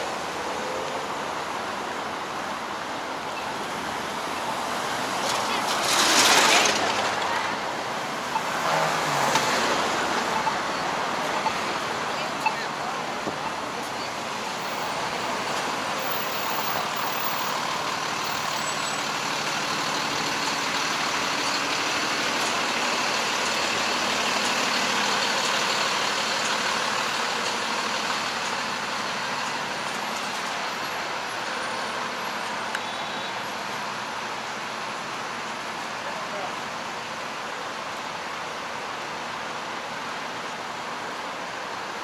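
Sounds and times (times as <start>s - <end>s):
road traffic passing: 0.0s - 42.0s.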